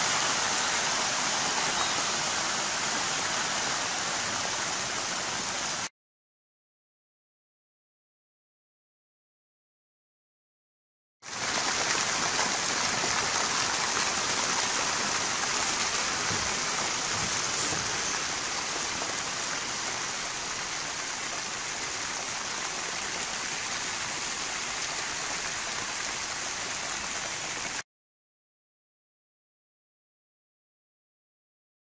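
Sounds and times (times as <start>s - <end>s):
rain falling: 0.0s - 5.9s, 11.2s - 27.8s.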